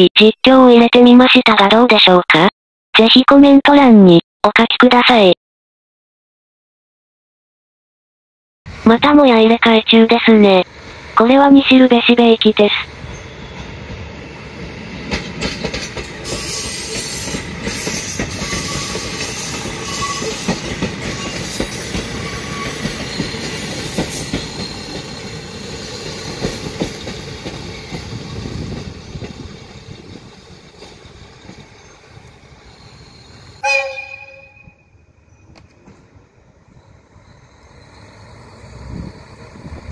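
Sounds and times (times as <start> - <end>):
diesel railcar engine: 10.6 - 11.2, 12.7 - 39.9
wheels clicking over rail joints: 15.1 - 16.4
train horn blast: 33.6 - 34.9.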